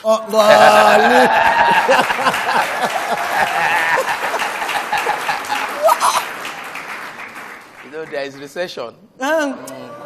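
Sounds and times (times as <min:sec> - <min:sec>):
audience laughing: 0:00.6 - 0:06.8
audience clapping: 0:00.6 - 0:08.8.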